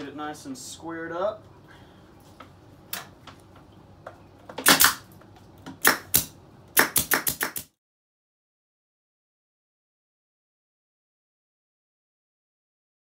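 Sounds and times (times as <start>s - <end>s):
staple gun firing into wood: 4.6s - 5.0s, 5.8s - 7.7s.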